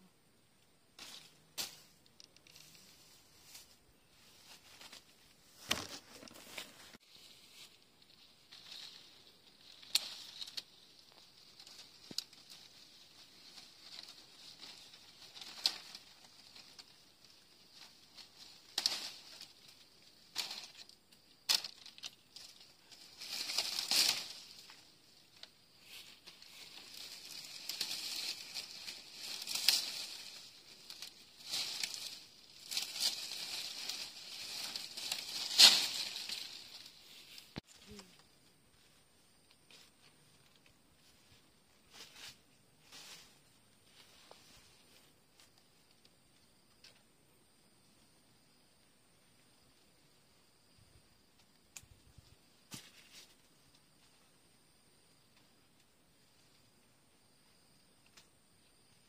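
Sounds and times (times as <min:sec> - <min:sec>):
leaves and twigs rustling: 0:00.6 - 0:59.0
stems snapping: 0:08.5 - 0:37.7.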